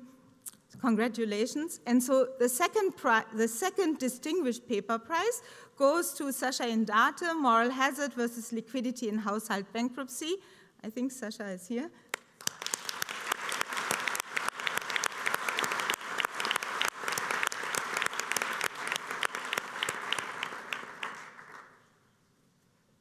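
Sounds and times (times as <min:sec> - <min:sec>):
audience applauding: 0:12.2 - 0:21.9.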